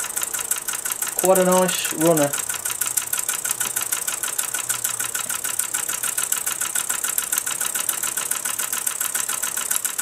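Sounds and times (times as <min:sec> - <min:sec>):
toy steam engine chuffing: 0:00.0 - 0:10.0.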